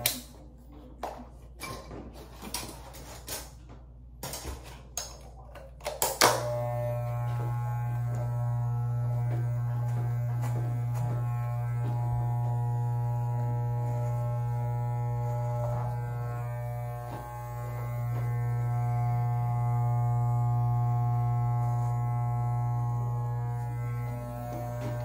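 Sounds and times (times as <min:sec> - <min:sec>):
electric beard trimmer buzzing: 0:06.2 - 0:25.0.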